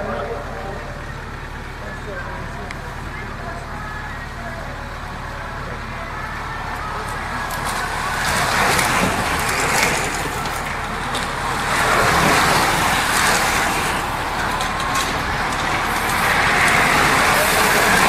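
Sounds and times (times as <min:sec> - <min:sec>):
bicycles rushing past: 0:06.0 - 0:18.0.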